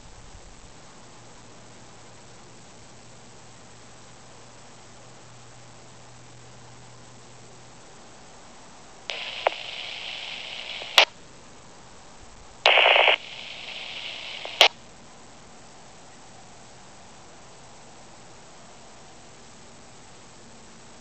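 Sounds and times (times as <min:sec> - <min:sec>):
radio carrier hiss: 0:07.7 - 0:21.0
squelch tail crack: 0:09.1 - 0:11.1, 0:12.7 - 0:14.8
burst of radio noise: 0:09.1 - 0:11.2, 0:12.7 - 0:14.8
radio transmission click: 0:09.1 - 0:11.2, 0:12.7 - 0:14.8.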